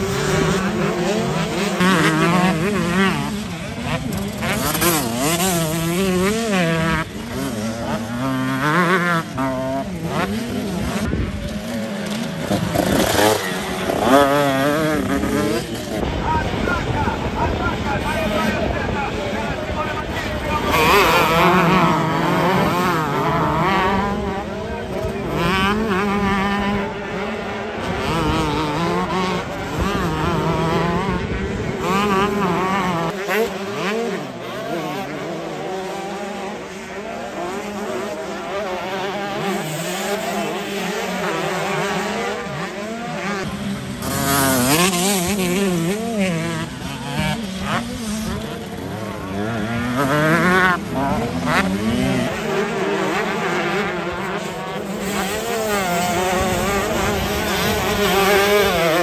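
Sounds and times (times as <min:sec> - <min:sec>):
motocross bikes revving: 0:00.0 - 0:59.0.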